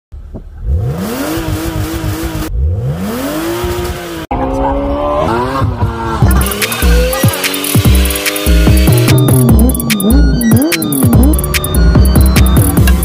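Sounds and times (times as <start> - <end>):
car engine revving: 0.2 - 13.0.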